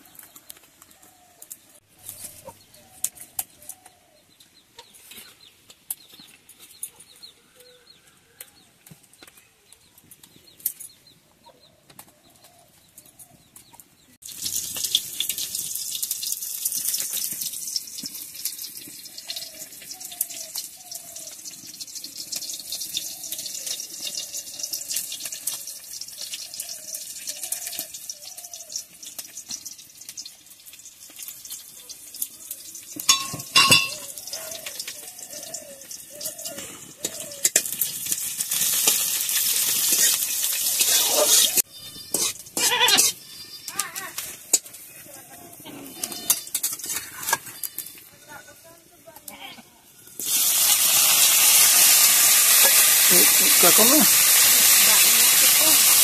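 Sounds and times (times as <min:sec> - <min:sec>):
hot oil sizzling: 0:14.2 - 0:48.6, 0:49.8 - 0:56.0.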